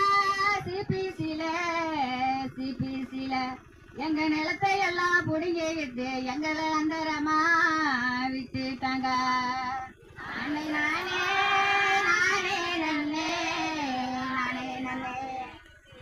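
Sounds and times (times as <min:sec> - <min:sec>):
woman singing into a microphone: 0:00.0 - 0:09.9.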